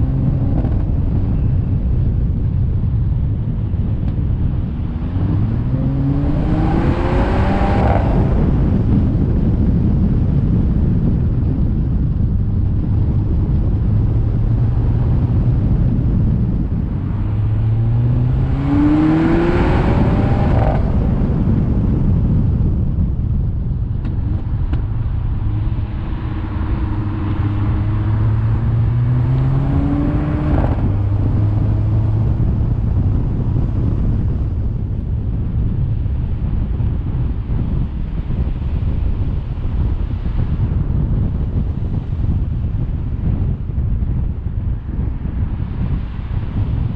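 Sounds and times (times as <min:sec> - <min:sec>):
car engine revving: 0:00.0 - 0:01.3, 0:04.1 - 0:08.9, 0:13.9 - 0:21.8, 0:24.0 - 0:34.3.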